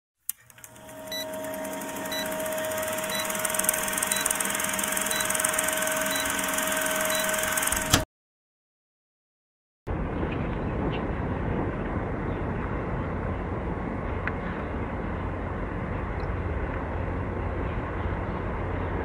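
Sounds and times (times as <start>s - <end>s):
constant hum: 0.3s - 8.0s, 9.9s - 19.0s
film projector clatter and hiss: 0.3s - 8.0s.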